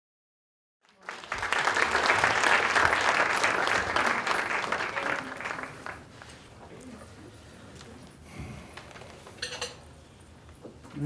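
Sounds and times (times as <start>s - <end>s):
audience applause: 0.8s - 6.6s.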